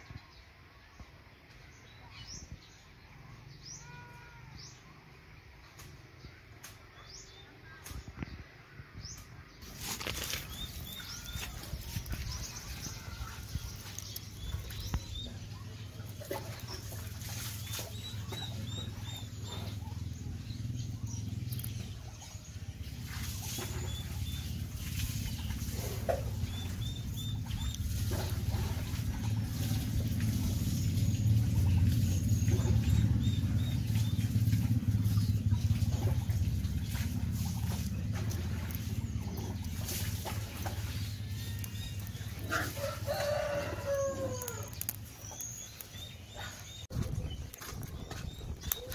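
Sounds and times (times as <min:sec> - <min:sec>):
twigs handled: 0:09.6 - 0:15.1, 0:37.5 - 0:45.9
low fire rumble: 0:09.6 - 0:48.9
fire crackling and popping: 0:38.3 - 0:43.3, 0:44.2 - 0:46.2.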